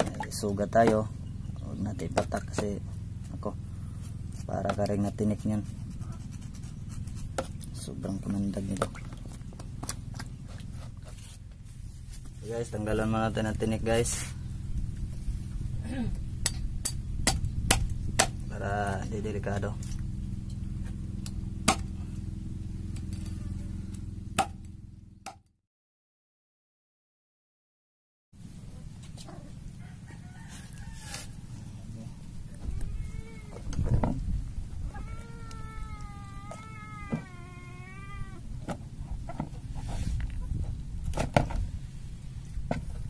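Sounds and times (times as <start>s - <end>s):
low hum: 0.0s - 25.3s
knife striking wooden log: 16.4s - 18.4s, 21.6s - 21.9s, 24.4s - 24.6s
cat meowing: 32.5s - 33.7s, 34.8s - 38.5s.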